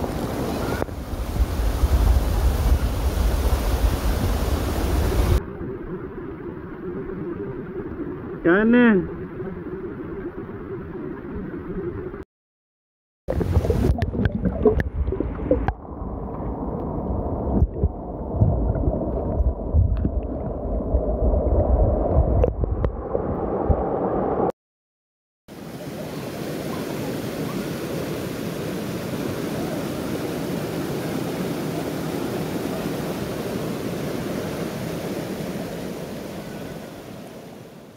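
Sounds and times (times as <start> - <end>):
water rushing over boulders: 0.0 - 5.5, 13.3 - 24.5, 25.5 - 37.9
knocks underwater: 13.3 - 15.8, 17.5 - 20.6, 22.1 - 23.0
water sloshing and gurgling: 13.3 - 24.5.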